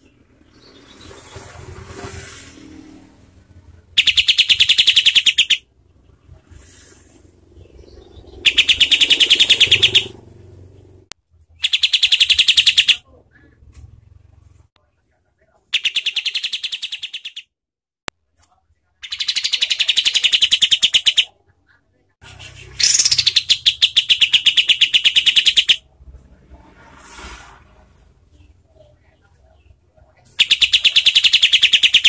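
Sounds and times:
bird singing fast repeated notes: 3.8s - 6.0s, 7.5s - 11.0s, 11.6s - 13.0s, 15.7s - 17.5s, 19.0s - 21.3s, 22.3s - 25.8s, 30.3s - 32.0s.

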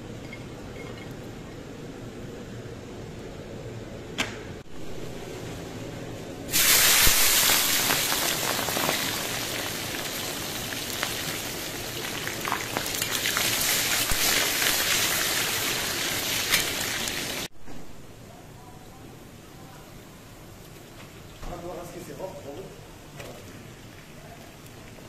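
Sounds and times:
deep-frying sizzle: 4.7s - 17.9s
oil popping and crackling: 6.5s - 17.5s.

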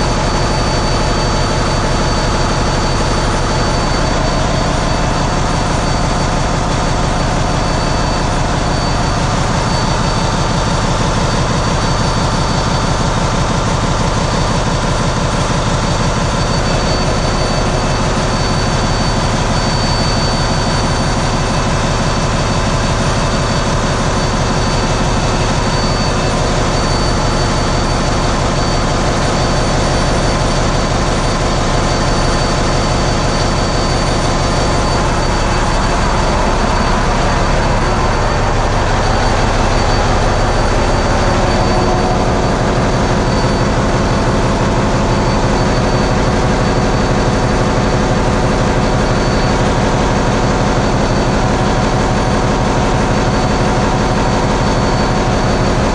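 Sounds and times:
diesel engines pulsing din: 0.0s - 55.9s
faint high whine: 15.8s - 55.9s.

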